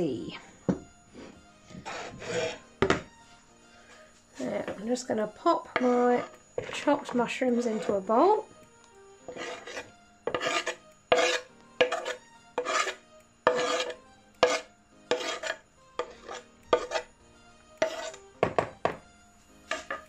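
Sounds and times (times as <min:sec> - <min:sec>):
spatula scraping wooden board: 0:01.1 - 0:03.1, 0:05.8 - 0:08.0, 0:09.3 - 0:17.1, 0:17.8 - 0:18.6, 0:19.7 - 0:20.0.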